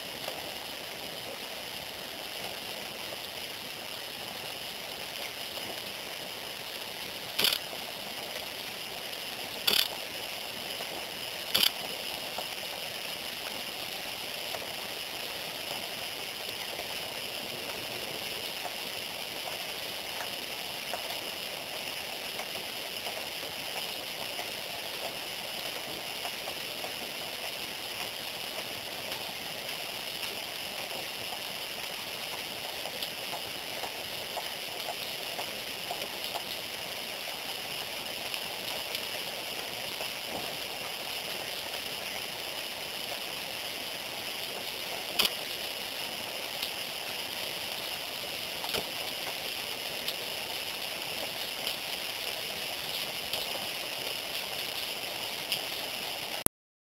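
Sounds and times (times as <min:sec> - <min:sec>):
steady outdoor hiss: 0:00.0 - 0:56.4
sharp clicks: 0:07.4 - 0:07.6, 0:09.7 - 0:09.9, 0:11.5 - 0:11.8.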